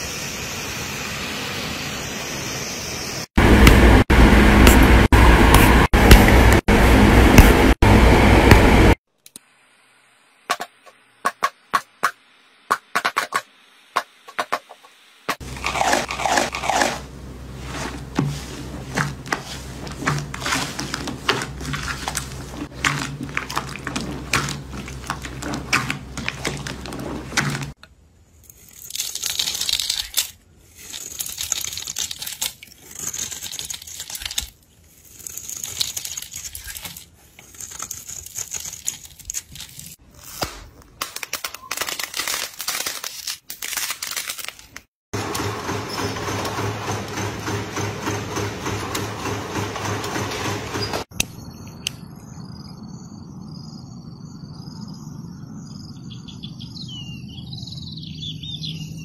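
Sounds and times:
slime squelching and crackling: 0:17.6 - 0:27.8, 0:28.4 - 0:40.0.

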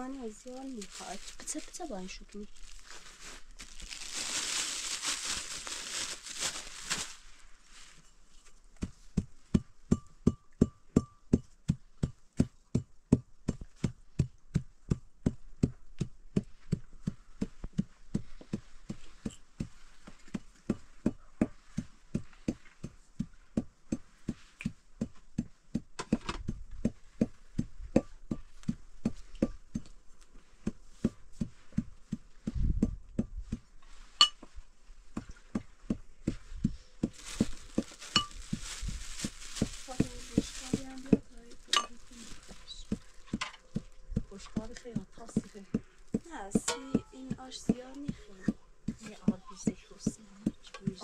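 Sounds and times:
pestle pounding in metal mortar: 0:09.5 - 0:12.2.

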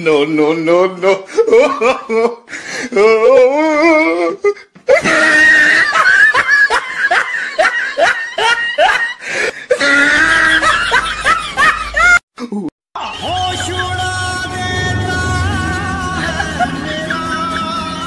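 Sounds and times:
person laughing loudly: 0:01.2 - 0:12.7, 0:15.4 - 0:18.0.

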